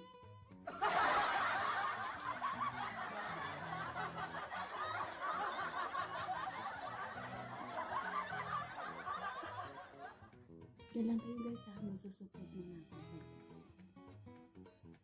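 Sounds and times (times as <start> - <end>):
many people laughing: 0.7 - 10.3.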